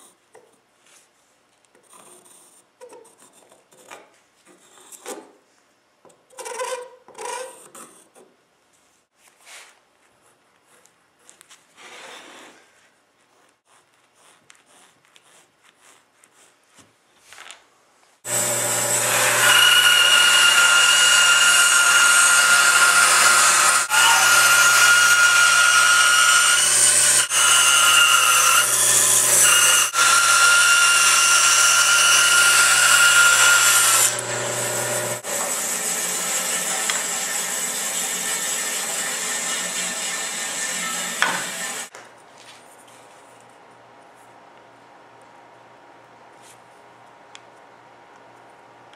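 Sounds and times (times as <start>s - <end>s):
pencil scratching on wood: 1.8s - 5.3s, 10.2s - 12.4s, 13.2s - 16.9s
band saw cutting wood: 18.3s - 41.9s.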